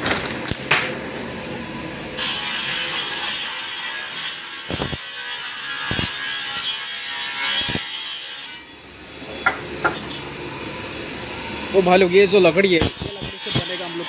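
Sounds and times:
woodworking machine cutting timber: 0:09.2 - 0:14.0.

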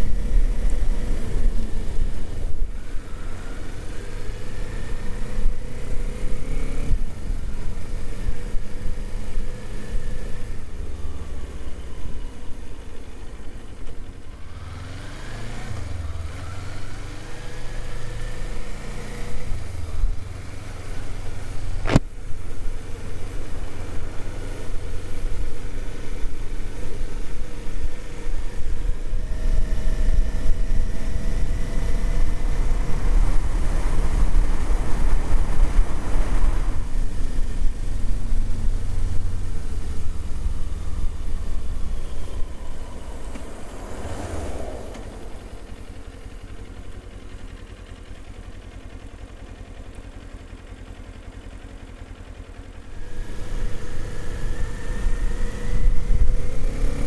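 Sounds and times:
motorcycle engine accelerating: 0:00.0 - 0:57.0
wind noise: 0:28.8 - 0:39.0, 0:53.0 - 0:57.0.

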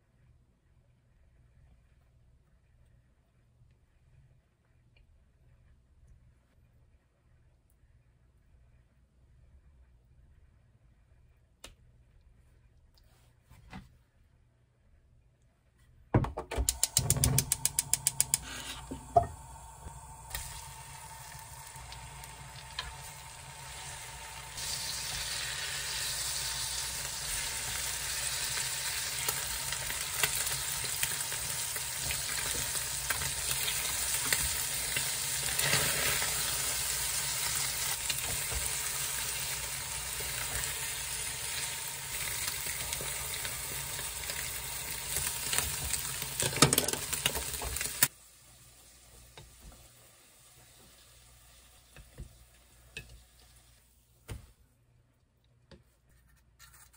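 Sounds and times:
utensils tapping and scraping: 0:16.7 - 0:19.3
bread sizzling in a pan: 0:17.4 - 0:53.9.

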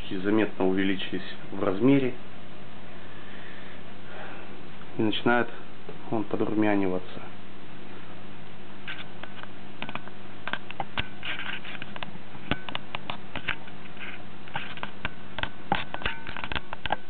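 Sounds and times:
convection oven fan humming: 0:00.0 - 0:17.0
light clicks and crackles: 0:08.8 - 0:17.0.

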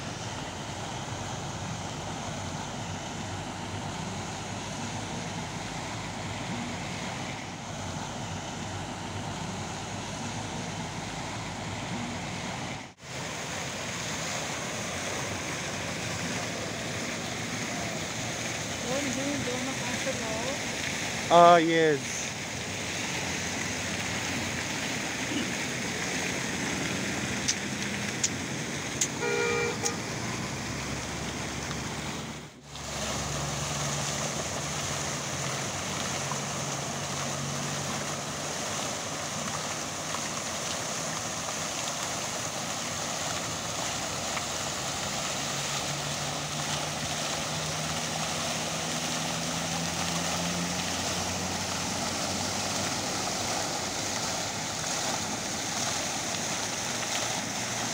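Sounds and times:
fountain splashing into basin: 0:00.0 - 0:57.9
road traffic: 0:00.0 - 0:57.9
car horn toot: 0:29.0 - 0:30.0.

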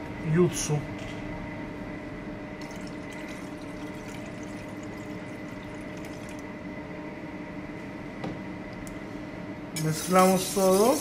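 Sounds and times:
ventilation hum: 0:00.0 - 0:11.0
juice pouring into metal bowl: 0:02.6 - 0:06.5.

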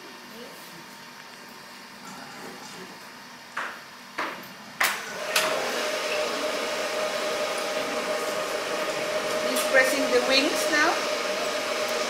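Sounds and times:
burner roar with hum: 0:04.8 - 0:12.0.

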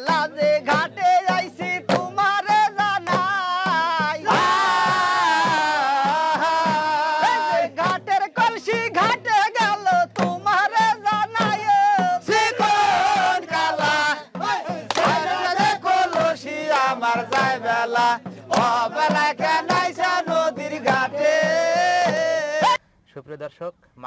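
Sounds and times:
quick steady drum beat: 0:00.0 - 0:22.8.

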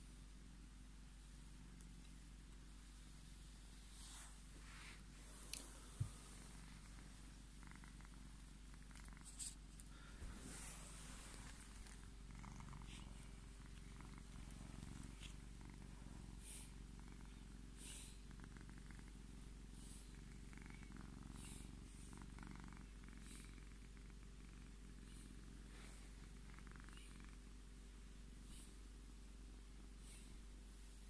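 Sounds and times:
cat purring: 0:00.0 - 0:31.0
hand rubbing fur: 0:03.8 - 0:07.1, 0:09.2 - 0:15.4.

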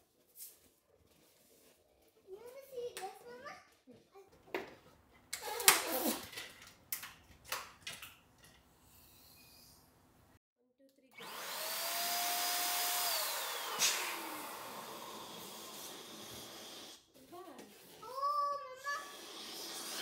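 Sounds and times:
electric balloon pump whining: 0:11.2 - 0:17.0.

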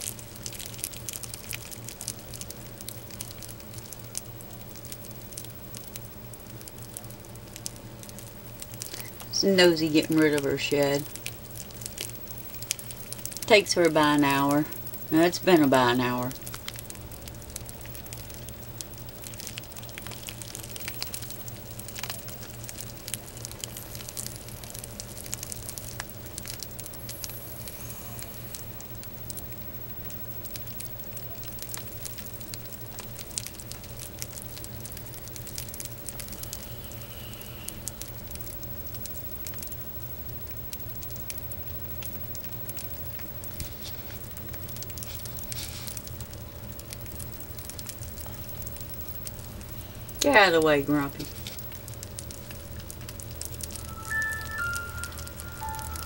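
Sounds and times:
steady low hum: 0:00.0 - 0:56.0
snake skin crackling: 0:42.0 - 0:50.2.

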